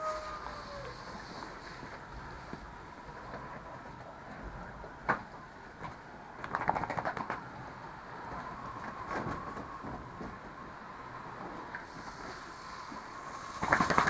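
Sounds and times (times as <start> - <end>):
water spray hissing: 11.8 - 14.0.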